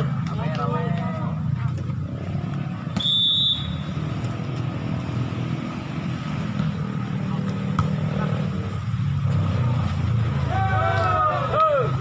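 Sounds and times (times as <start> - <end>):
low vehicle rumble: 0.0 - 12.0
referee's whistle: 3.0 - 3.9.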